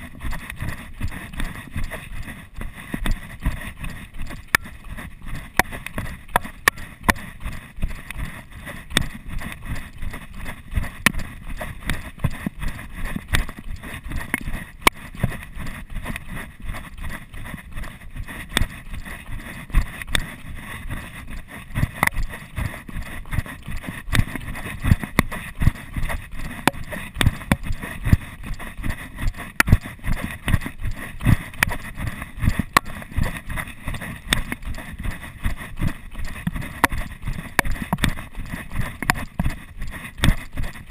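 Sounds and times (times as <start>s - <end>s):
running footsteps on gravel: 0.0s - 40.9s.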